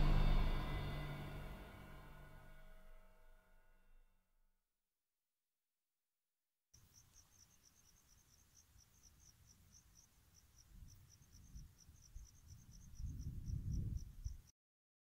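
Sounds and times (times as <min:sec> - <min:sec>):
crickets chirping: 0:06.8 - 0:14.5
wind rumble on microphone: 0:10.7 - 0:14.5.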